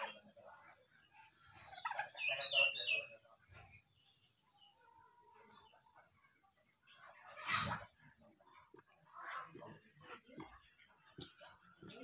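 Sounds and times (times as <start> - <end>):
bird chirping: 0.0 - 8.9.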